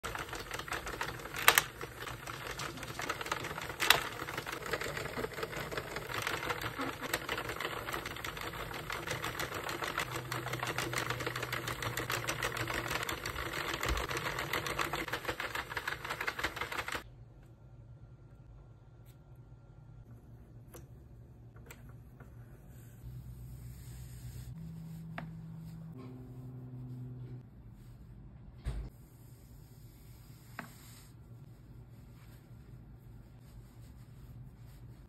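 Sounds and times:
knitting machine needles clattering: 0.0 - 17.0.

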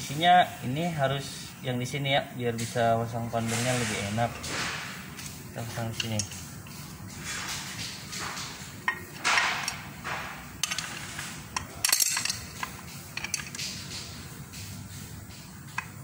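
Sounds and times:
metal bracket clinking and scraping: 7.2 - 14.1.

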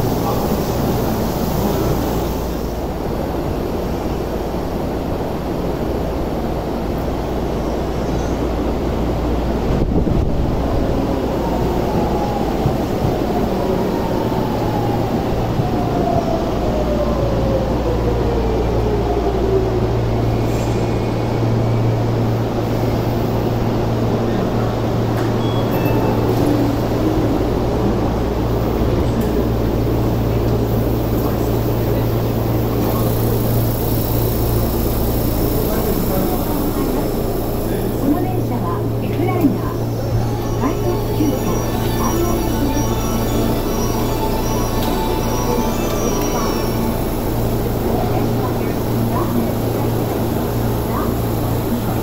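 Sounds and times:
subway train braking to a stop: 0.0 - 52.0.

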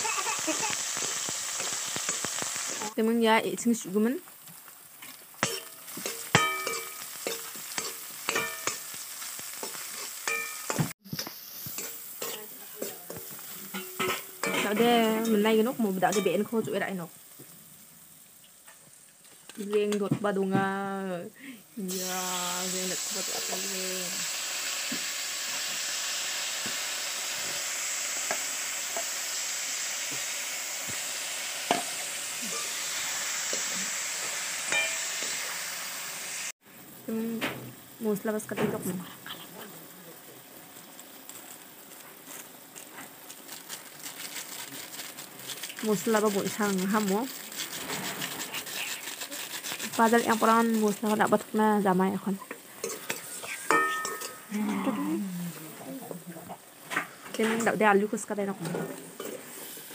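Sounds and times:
onions sizzling in oil: 0.0 - 59.9
metal spoon clinking on wok: 5.4 - 9.0, 9.6 - 10.8, 34.7 - 35.2, 52.8 - 54.5.

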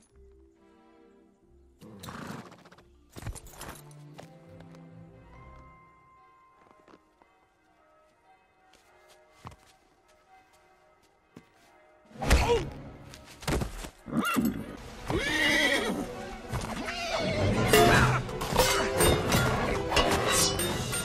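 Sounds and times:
film score music: 0.0 - 21.0
hoofbeats: 13.4 - 20.2
horse neighing and whinnying: 14.1 - 16.1, 16.7 - 18.2.

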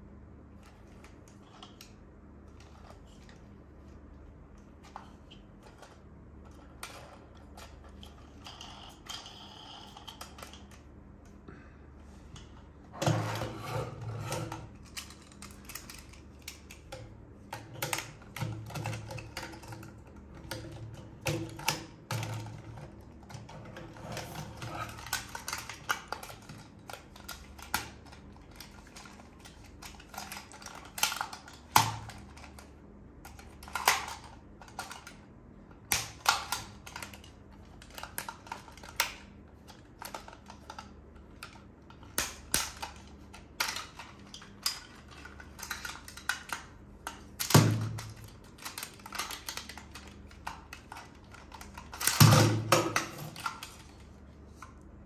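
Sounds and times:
plastic toy packaging handled: 22.4 - 32.7, 35.9 - 54.7.

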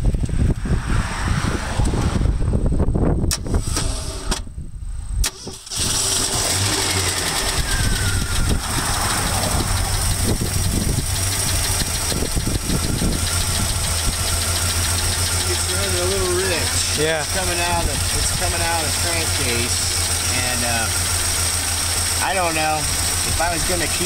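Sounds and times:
engine idling with light ticking: 7.1 - 24.0.

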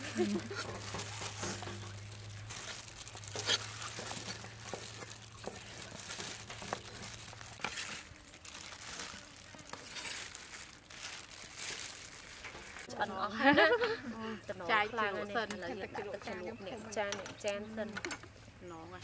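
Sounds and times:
crinkling rustle: 0.0 - 12.9.

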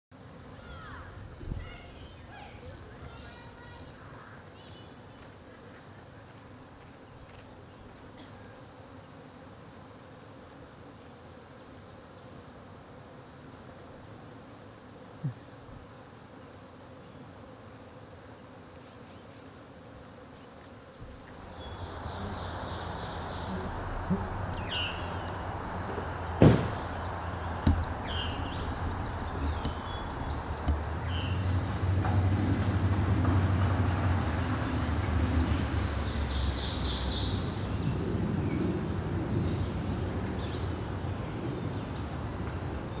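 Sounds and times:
bee swarm humming: 0.1 - 43.0
birdsong: 0.6 - 8.3, 18.6 - 43.0
sharp thumps: 21.0 - 33.4
low rumble: 21.4 - 35.7.

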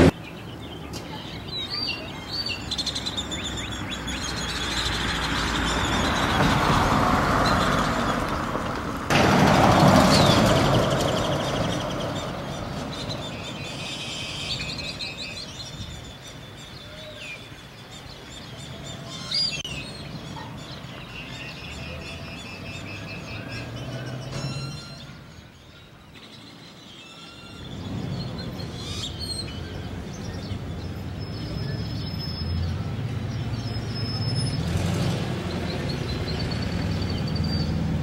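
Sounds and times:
small birds chirping: 0.0 - 8.6, 10.1 - 34.7
vehicle rushing by: 3.4 - 15.1, 29.6 - 38.0.

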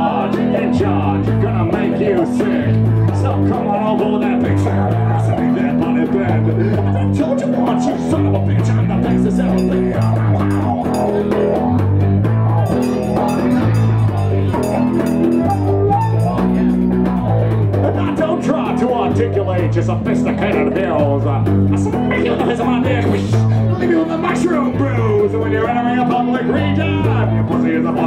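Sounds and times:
bass guitar line: 0.0 - 28.0
electric guitar: 0.0 - 28.0
hand drum: 9.5 - 17.9.

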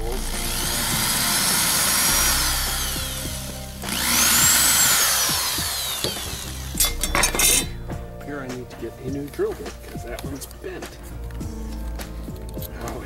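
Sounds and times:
cordless drill boring into metal: 0.0 - 7.7.

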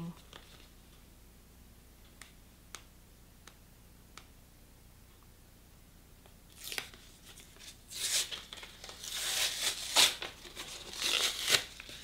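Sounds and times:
plastic film tearing and crackling: 6.5 - 12.0.

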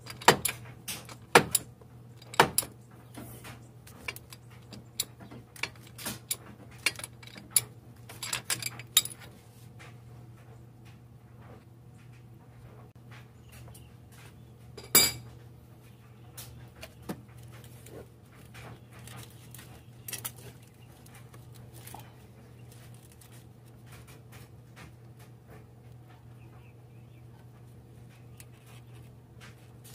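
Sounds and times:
metal tools clinking and rattling: 0.0 - 2.7, 3.9 - 9.3, 14.8 - 15.2
steady low hum: 0.0 - 29.9
loud metallic clink: 14.8 - 15.2.

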